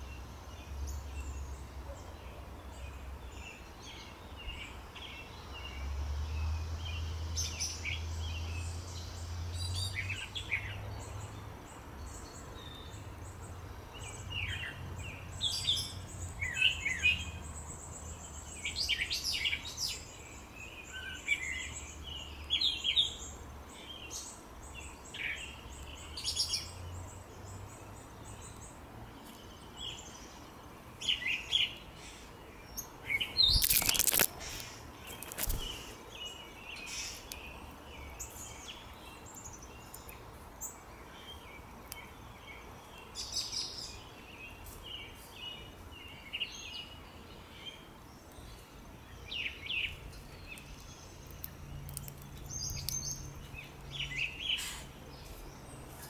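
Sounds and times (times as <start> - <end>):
songbirds chirping: 0.0 - 56.0.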